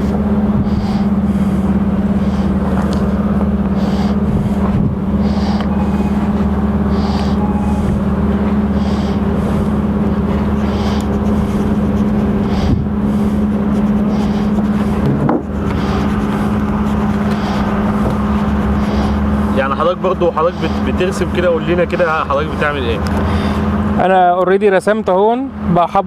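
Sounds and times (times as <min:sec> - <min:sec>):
low mechanical hum: 0:00.0 - 0:26.0.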